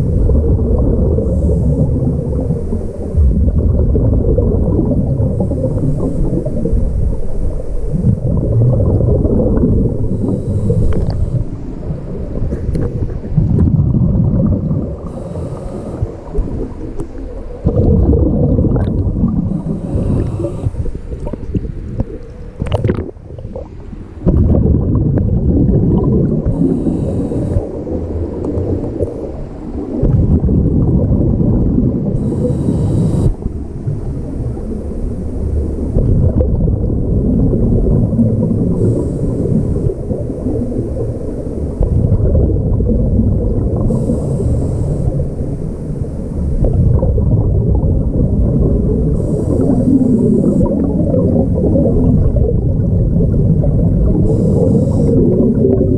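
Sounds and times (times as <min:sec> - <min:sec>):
exhaled bubbles rumbling: 0:00.0 - 0:55.9
regulator inhale hiss: 0:01.2 - 0:03.2, 0:10.0 - 0:11.8, 0:15.0 - 0:17.1, 0:19.5 - 0:21.4, 0:26.4 - 0:27.8, 0:32.2 - 0:34.2, 0:38.7 - 0:40.1, 0:43.8 - 0:46.5, 0:49.1 - 0:50.8, 0:54.2 - 0:55.4.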